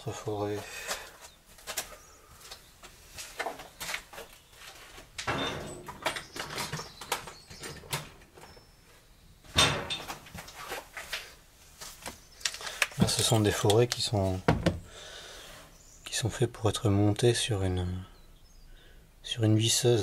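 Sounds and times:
tools clicking and clattering: 5.2 - 8.5.

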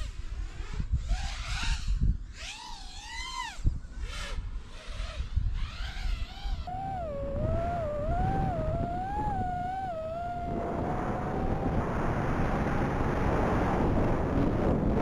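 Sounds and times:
drone motors whining: 1.0 - 15.0
broad rushing noise: 6.7 - 15.0.

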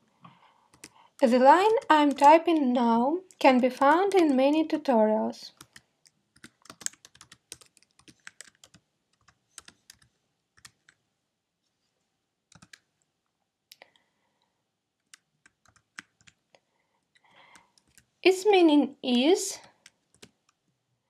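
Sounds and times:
faint keyboard typing: 0.2 - 4.7, 5.5 - 11.0, 12.5 - 13.1, 15.0 - 18.2, 19.6 - 20.8.

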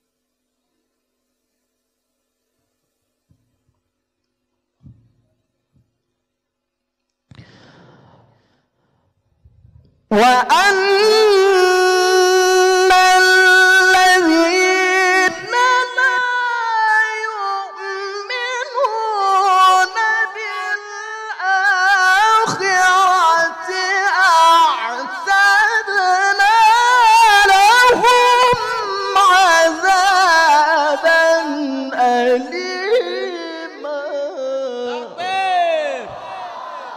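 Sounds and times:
man chanting into a microphone: 10.1 - 36.3.

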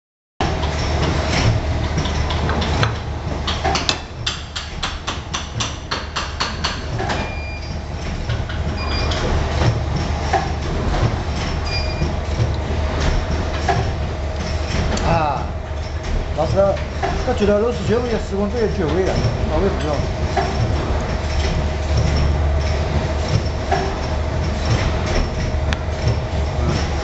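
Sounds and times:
machinery hum: 0.4 - 27.0
high squeaks or beeps: 8.8 - 9.2, 11.6 - 12.1.

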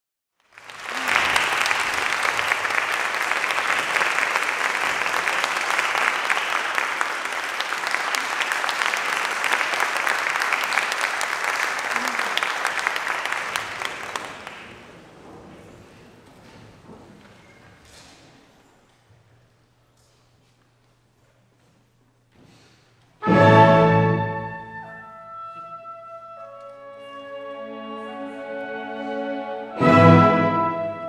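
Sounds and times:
audience applauding: 0.4 - 15.1.

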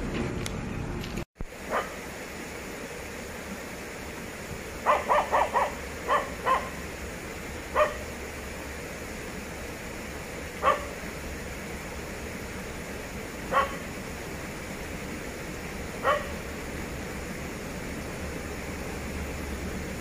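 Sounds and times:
dog barking: 1.7 - 2.0, 4.8 - 6.8, 7.7 - 8.1, 10.6 - 11.0, 13.5 - 13.9, 16.0 - 16.4.

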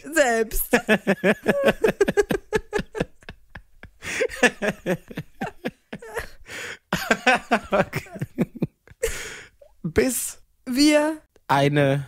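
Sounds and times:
people laughing: 0.6 - 9.2.

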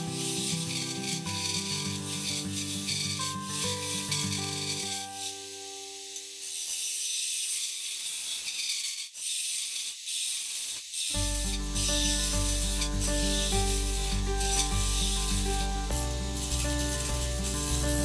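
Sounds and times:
background music: 11.2 - 18.0.

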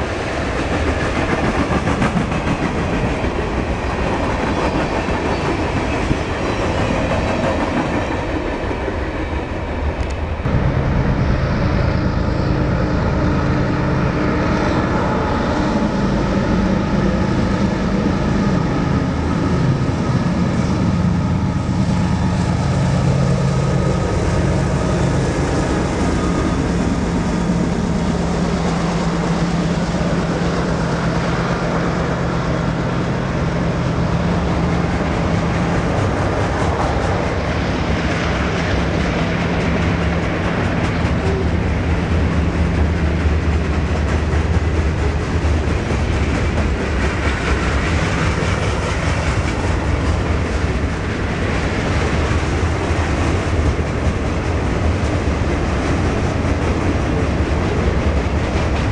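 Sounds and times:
train wheels clattering on rail: 0.0 - 11.0, 18.4 - 58.9
locomotive engines droning: 0.0 - 58.9.

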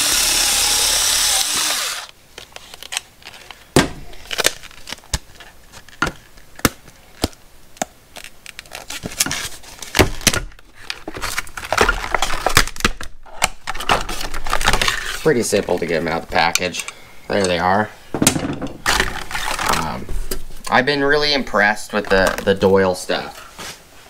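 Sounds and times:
plastic packaging crackling: 2.0 - 16.7.

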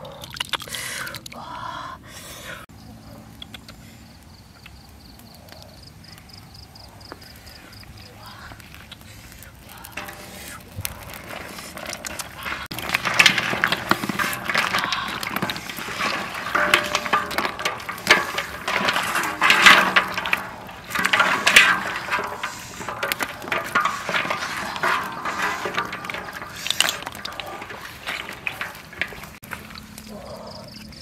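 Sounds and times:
snail shells clattering in a basket: 7.5 - 31.0.

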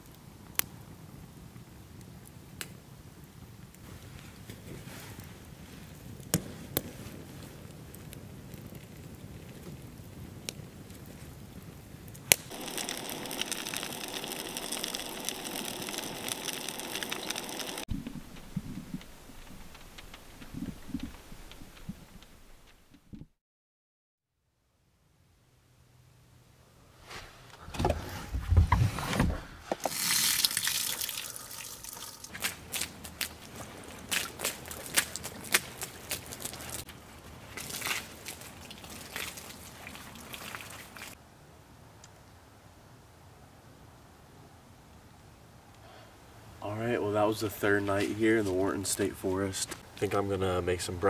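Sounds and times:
campfire crackling: 0.0 - 23.2, 29.6 - 42.3, 45.7 - 51.0
fire popping and snapping: 0.0 - 23.3, 29.6 - 41.2
rain hissing: 12.2 - 22.8, 29.6 - 41.2
food sizzling in oil: 12.5 - 17.9, 29.9 - 32.4.

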